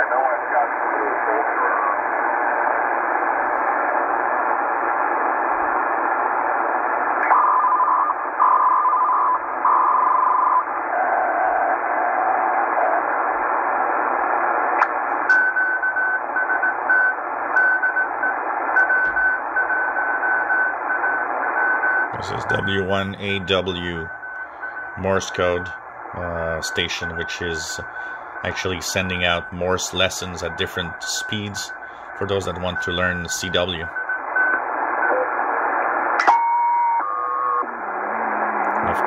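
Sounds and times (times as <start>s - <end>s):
radio band noise hiss: 0.0s - 7.1s, 21.2s - 34.0s, 37.6s - 39.0s
short steady radio tones: 0.0s - 39.0s
morse code tones: 15.3s - 34.6s.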